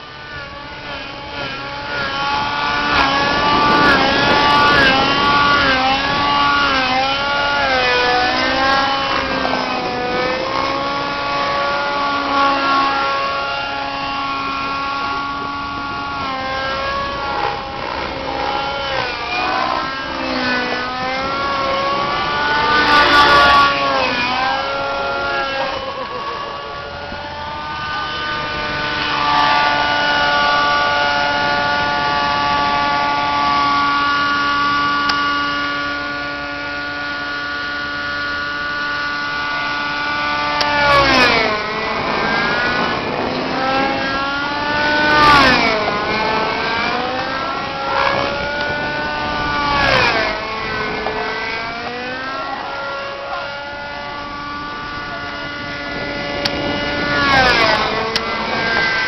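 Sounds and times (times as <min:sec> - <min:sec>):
model helicopter engine and rotor: 0:00.0 - 0:59.0.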